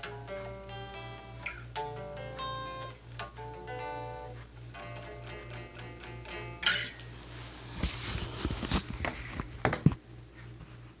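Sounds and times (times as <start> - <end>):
guitar picking: 0.0 - 7.4.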